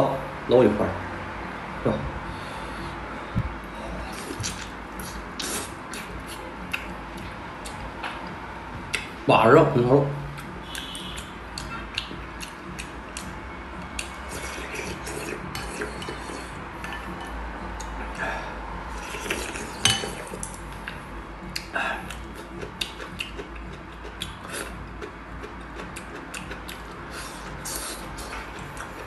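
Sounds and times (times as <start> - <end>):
chewing: 4.1 - 7.8, 13.9 - 17.2, 19.0 - 29.0
chopsticks and spoon clinking dishes: 19.2 - 20.5.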